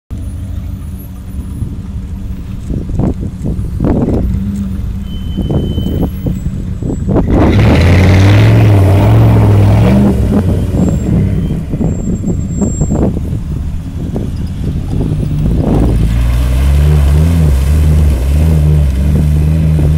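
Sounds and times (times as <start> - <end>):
suv engine revving: 0.2 - 19.9
water splashing from tyres: 10.0 - 19.9.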